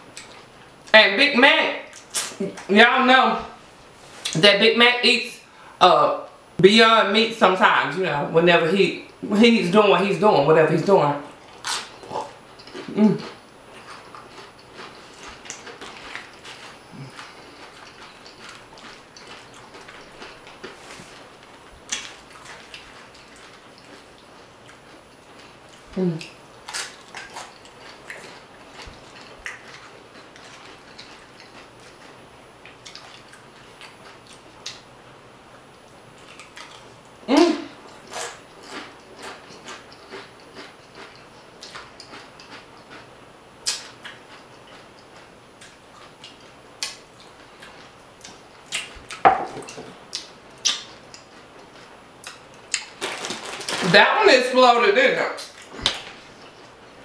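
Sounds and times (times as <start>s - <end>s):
chewing food: 0.1s - 0.5s, 11.4s - 34.9s, 35.6s - 53.9s
tortilla chips crackling: 11.5s - 34.8s, 50.2s - 54.5s.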